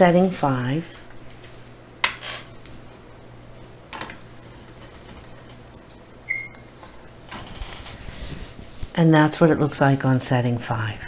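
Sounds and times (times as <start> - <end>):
low steady hum: 0.0 - 11.0
short squeak: 6.3 - 6.6.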